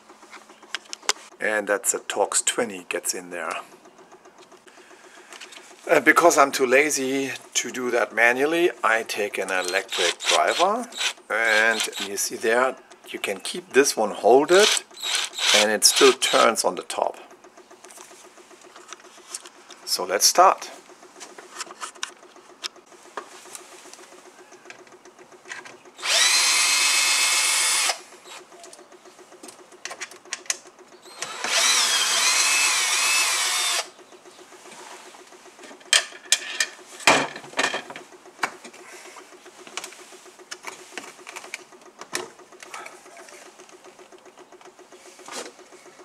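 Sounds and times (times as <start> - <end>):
electric screwdriver whine: 9.6 - 12.1, 14.5 - 16.4, 26.0 - 28.0, 31.1 - 33.9
clicks and knocks of handling: 21.2 - 25.9, 28.5 - 31.0, 35.6 - 38.8, 39.6 - 46.0.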